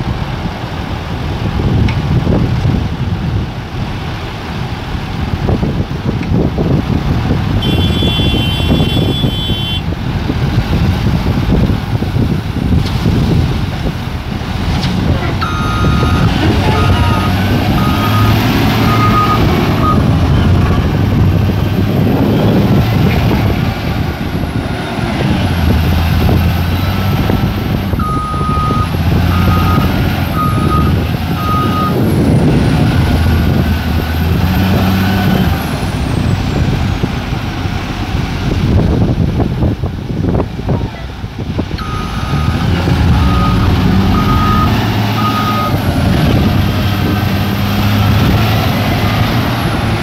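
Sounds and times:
wheel loader diesel engine: 0.0 - 50.0
reversing alarm beeping: 15.4 - 20.1, 28.0 - 32.0, 41.8 - 45.8.

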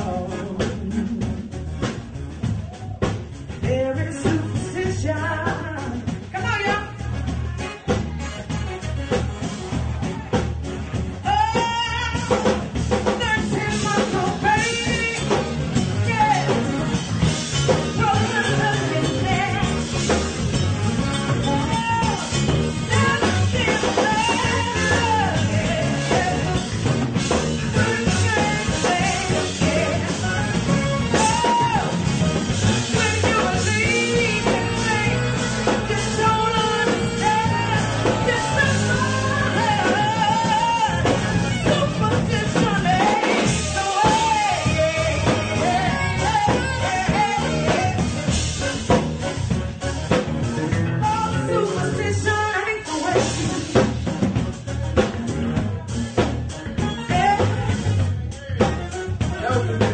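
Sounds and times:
woman singing into microphone: 0.0 - 1.6, 3.6 - 7.1, 11.2 - 15.4, 16.0 - 16.7, 17.9 - 19.9, 22.9 - 26.9, 27.7 - 31.9, 32.8 - 48.4, 51.0 - 53.9, 56.8 - 59.8
alto saxophone: 0.0 - 59.9
drum kit: 0.0 - 59.9
electric bass guitar: 0.0 - 59.9
keyboard: 0.0 - 59.9.

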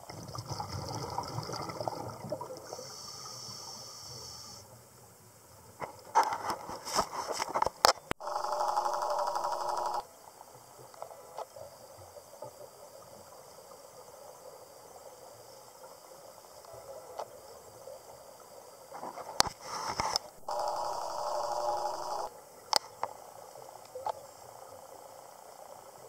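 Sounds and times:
exhaled bubbles rushing: 0.0 - 2.8
faint hiss: 2.1 - 8.2, 8.8 - 26.0
diver breathing through regulator: 2.6 - 4.7.

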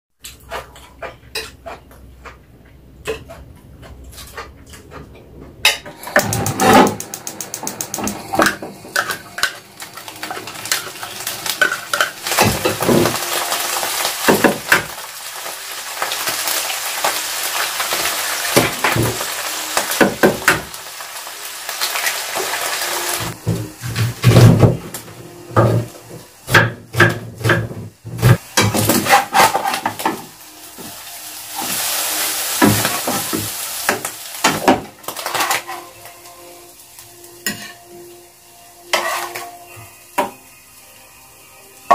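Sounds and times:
utensil scraping a pan: 5.7 - 13.3, 27.5 - 30.2, 37.4 - 37.8, 38.9 - 39.5
food sizzling in a frying pan: 5.8 - 41.9.

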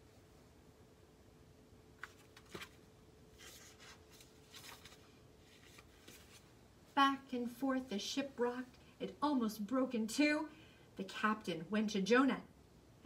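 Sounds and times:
faint room hum: 0.0 - 13.0
paper pages rustling and turning: 2.0 - 6.6.

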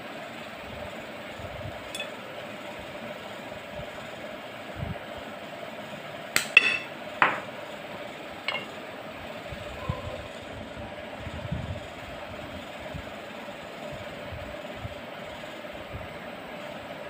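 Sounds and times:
steady hum: 0.0 - 17.0
clicks and knocks of kitchenware: 6.4 - 7.4, 8.5 - 8.7.

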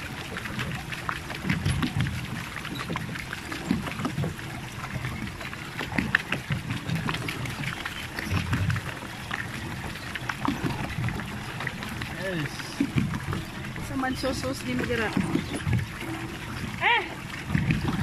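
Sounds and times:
water splashing and lapping: 0.0 - 18.0.

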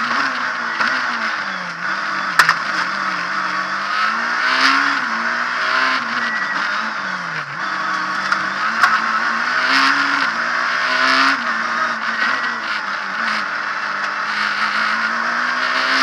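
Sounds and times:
car engine revving through gears: 0.0 - 16.0
road and drivetrain clatter: 0.0 - 16.0
sharp click: 2.3 - 2.9.

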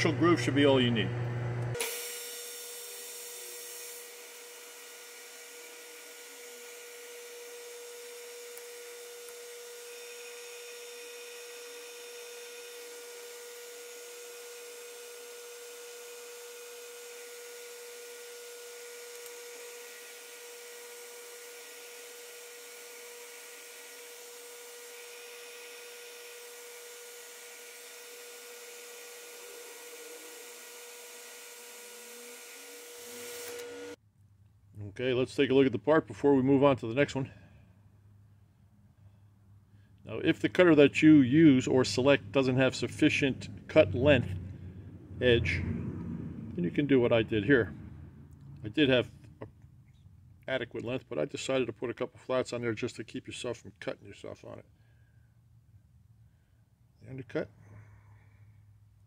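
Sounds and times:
lathe humming: 0.0 - 34.0
parting tool cutting groove: 1.8 - 34.0.

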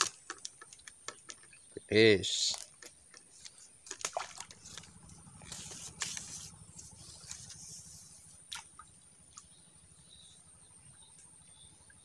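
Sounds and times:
dry reeds rustling: 3.1 - 8.2
small plop into water: 3.9 - 4.5, 8.5 - 9.6.

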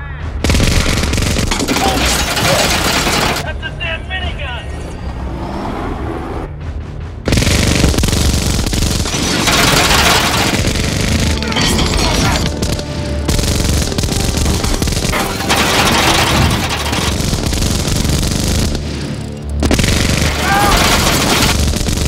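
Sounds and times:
film score music: 0.0 - 22.0
minigun firing burst: 0.4 - 3.4, 7.3 - 22.0.

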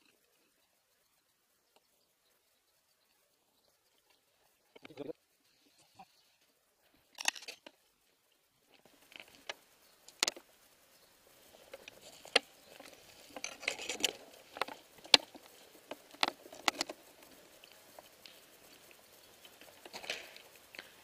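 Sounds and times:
sharp cracks and clicks: 7.1 - 7.8, 8.7 - 10.5, 11.7 - 21.0.

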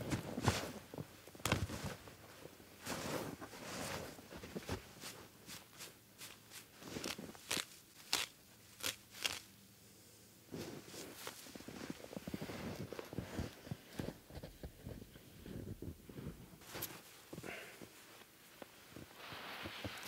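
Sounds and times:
boots crunching in snow: 2.8 - 7.5
dry grass tearing and rustling: 5.5 - 9.5.

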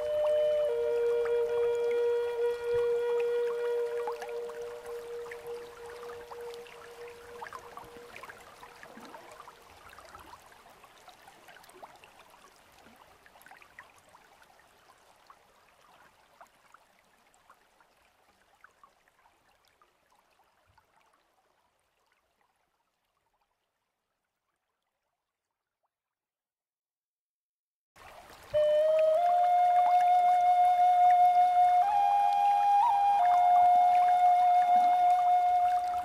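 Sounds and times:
held musical note: 0.0 - 8.6, 28.6 - 36.0.

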